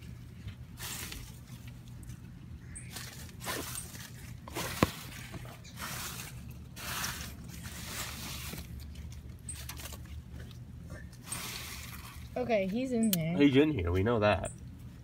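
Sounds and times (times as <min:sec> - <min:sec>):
dry leaves rustling and crunching: 0:00.6 - 0:10.2, 0:11.2 - 0:12.4.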